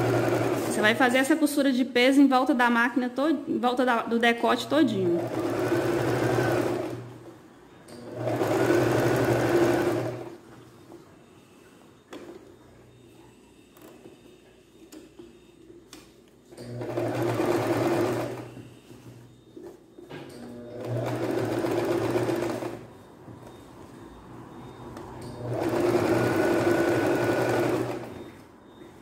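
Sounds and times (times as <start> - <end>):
sewing machine stitching: 0.0 - 1.2, 4.8 - 7.2, 7.9 - 10.4, 16.6 - 18.6, 20.4 - 22.9, 25.3 - 28.3.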